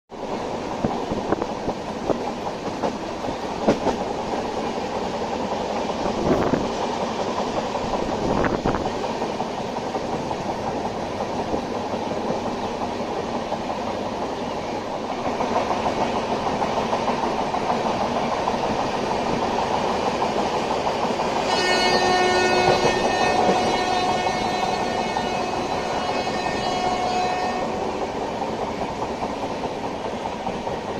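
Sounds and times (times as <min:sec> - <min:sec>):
train wheels rumbling on rails: 0:00.1 - 0:30.9
train horn: 0:21.4 - 0:28.0.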